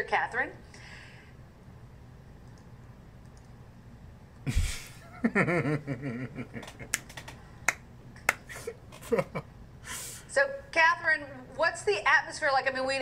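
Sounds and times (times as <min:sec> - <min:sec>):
faint low hum: 0:00.0 - 0:13.0
man laughing: 0:04.5 - 0:07.0, 0:08.5 - 0:09.5
finger snaps: 0:06.9 - 0:08.5.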